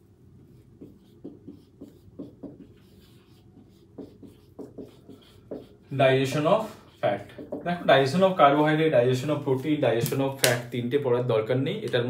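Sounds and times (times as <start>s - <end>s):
marker writing on whiteboard: 0.1s - 9.7s.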